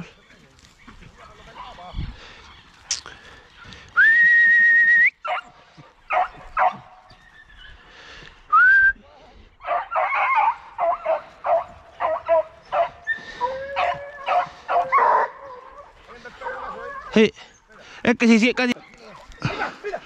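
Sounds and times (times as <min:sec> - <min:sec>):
hounds barking and yelping: 0:05.1 - 0:08.2, 0:09.6 - 0:17.7.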